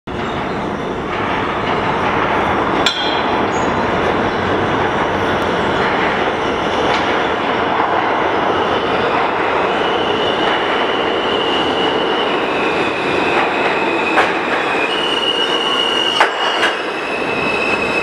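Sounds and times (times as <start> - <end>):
subway train wheels on rails: 0.1 - 18.0
sharp clank: 2.8 - 3.5.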